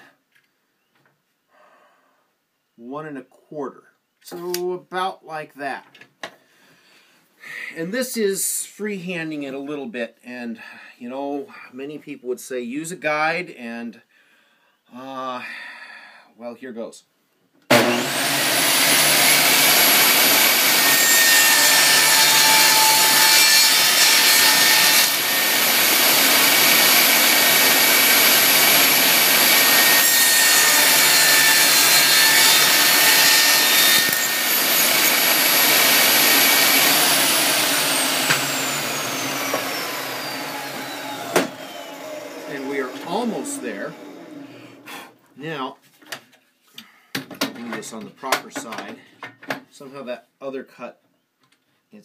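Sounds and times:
saw cutting wooden bar: 0:17.7 - 0:44.9
table saw whining: 0:17.7 - 0:44.9.

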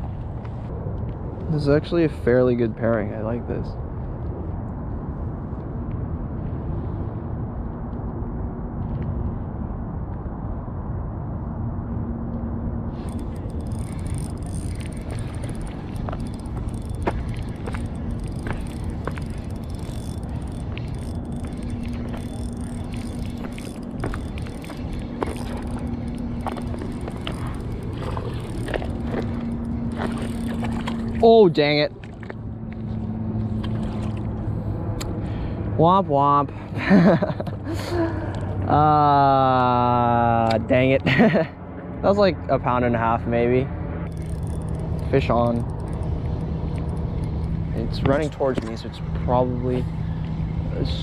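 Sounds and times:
low outdoor rumble: 0:00.0 - 0:51.0
fishing reel whirring: 0:12.9 - 0:31.8, 0:44.0 - 0:51.0.

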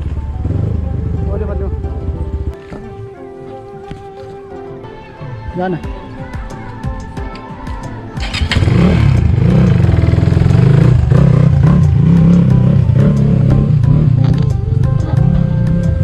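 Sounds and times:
dirt bike engine: 0:08.2 - 0:16.0.

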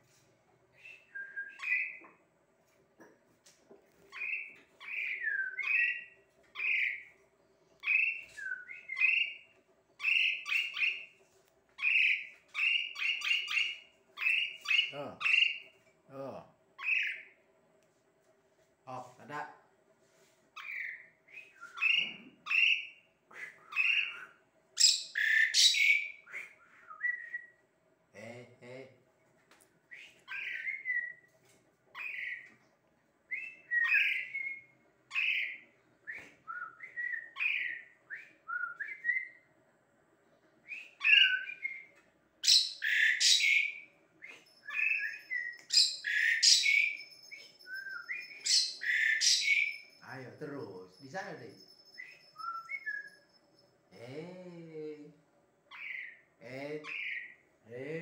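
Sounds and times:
harsh raspy bird calls: 0:11.8 - 0:15.7, 0:21.8 - 0:26.4, 0:42.4 - 0:43.8, 0:44.7 - 0:47.0, 0:48.0 - 0:50.2, 0:55.7 - 0:57.5.

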